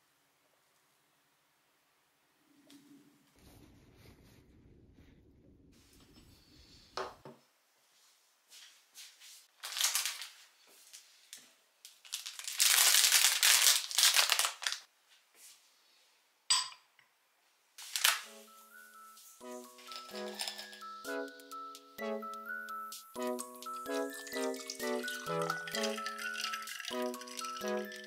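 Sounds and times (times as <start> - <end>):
plastic packaging crinkling: 9.6 - 11.0, 11.9 - 14.9, 17.8 - 18.4, 19.7 - 21.0, 23.4 - 28.0.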